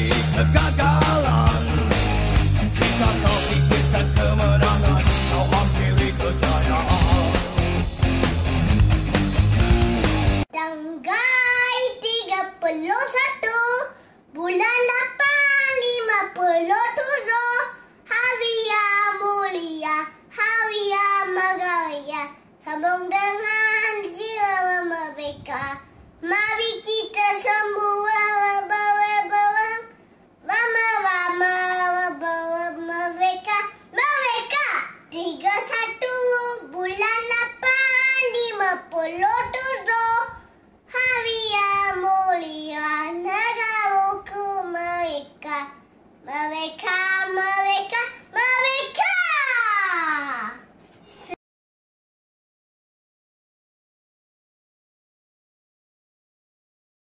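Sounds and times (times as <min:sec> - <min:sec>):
boy singing unaccompanied: 0:00.0 - 0:02.0, 0:02.8 - 0:07.8, 0:10.6 - 0:45.7, 0:46.3 - 0:49.0.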